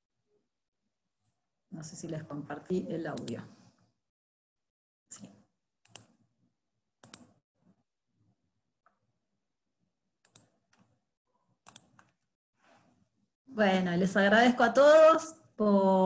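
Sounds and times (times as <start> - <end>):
computer mouse clicks: 3.1 - 3.5, 5.2 - 6.2, 7.0 - 7.4, 10.2 - 11.0, 11.6 - 12.3.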